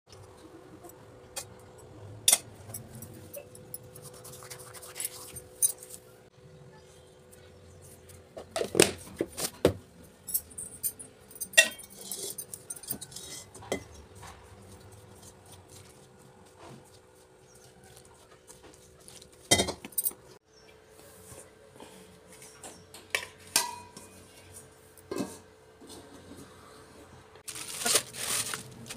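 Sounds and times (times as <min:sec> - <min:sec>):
metal bowl clanking and scraping: 0:10.2 - 0:15.0, 0:22.4 - 0:26.6
hands rubbing dough: 0:14.1 - 0:19.5.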